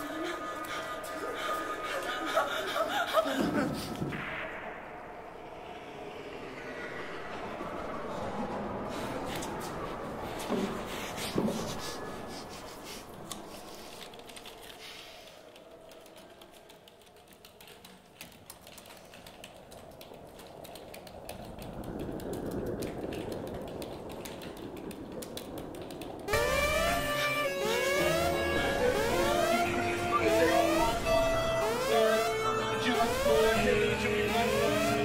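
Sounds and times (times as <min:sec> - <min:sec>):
low drone: 0:00.0 - 0:16.2, 0:26.3 - 0:35.0
keyboard keys clicking: 0:15.5 - 0:26.4.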